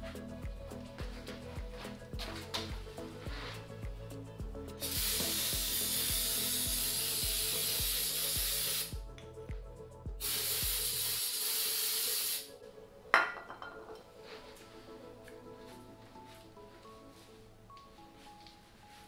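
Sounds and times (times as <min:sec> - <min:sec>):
aerosol spray hissing: 0:04.8 - 0:09.0, 0:10.2 - 0:12.5.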